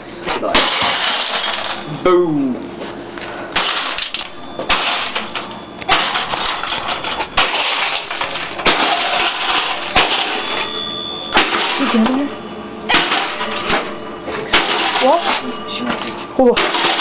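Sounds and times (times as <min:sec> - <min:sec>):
hammer smashing toaster oven: 0:00.4 - 0:01.9, 0:03.5 - 0:12.0, 0:12.9 - 0:13.9, 0:14.5 - 0:15.5, 0:16.5 - 0:17.0.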